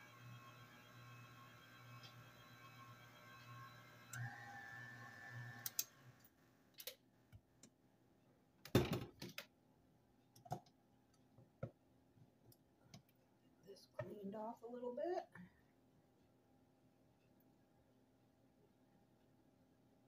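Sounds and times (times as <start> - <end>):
stand mixer motor running: 0.0 - 6.0.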